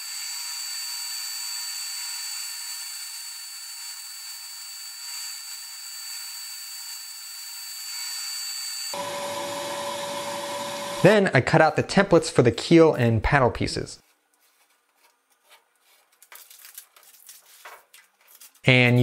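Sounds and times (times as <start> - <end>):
high whine: 9.0 - 11.4.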